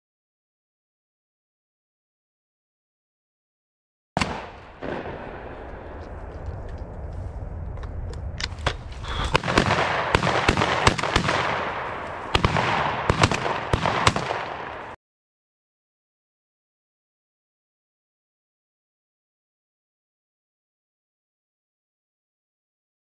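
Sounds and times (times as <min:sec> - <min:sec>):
shotguns firing: 0:04.2 - 0:06.4, 0:08.6 - 0:15.0.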